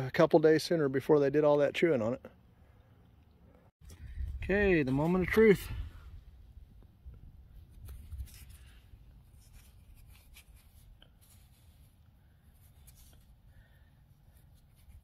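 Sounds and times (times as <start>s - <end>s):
fingers scraping soil: 7.6s - 13.4s, 14.3s - 15.0s.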